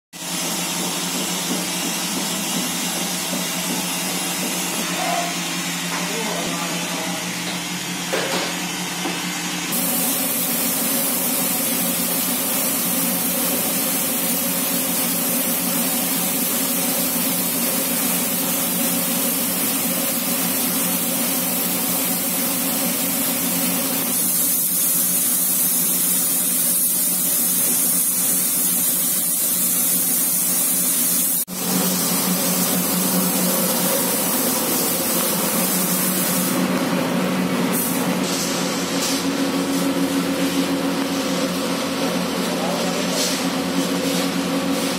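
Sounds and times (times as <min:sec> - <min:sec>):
spray gun hissing: 0:09.7 - 0:36.6, 0:37.7 - 0:42.1.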